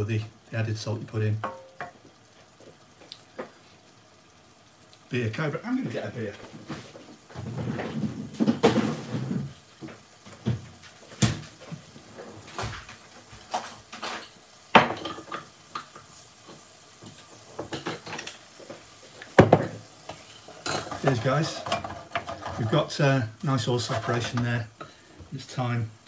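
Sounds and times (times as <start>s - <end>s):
dishes clattering: 1.4s - 2.0s, 6.7s - 9.6s, 13.5s - 15.9s, 17.6s - 18.8s, 19.4s - 22.8s.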